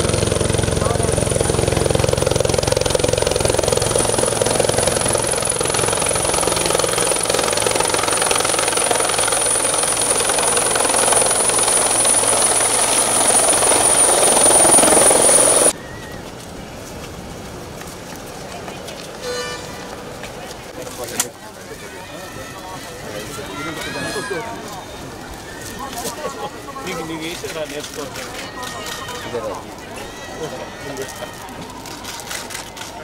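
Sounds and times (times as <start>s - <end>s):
turbine high whine: 0.0s - 15.7s
helicopter rotor beating: 0.0s - 15.8s.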